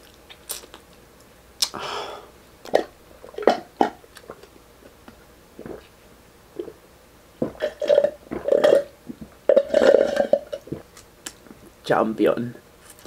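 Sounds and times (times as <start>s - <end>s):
man gulping a drink: 5.6s - 5.9s, 6.5s - 6.8s, 7.4s - 11.0s.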